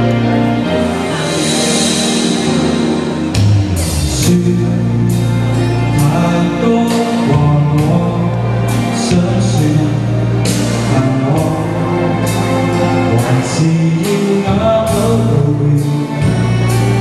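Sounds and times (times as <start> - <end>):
recorded backing track: 0.0 - 17.0
steady drum beat: 0.1 - 5.4
man singing pop ballad: 4.1 - 17.0.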